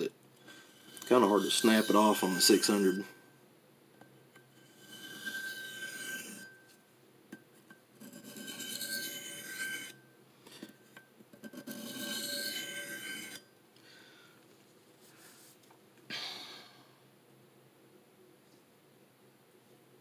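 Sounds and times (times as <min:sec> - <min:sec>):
knife scraping on sharpening plate: 0:00.5 - 0:03.1, 0:04.4 - 0:06.7, 0:08.0 - 0:10.0, 0:11.4 - 0:13.4.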